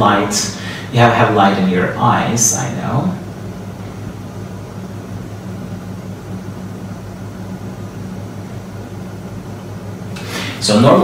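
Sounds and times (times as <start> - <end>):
low room hum: 0.0 - 11.0
faint hiss: 10.1 - 11.0.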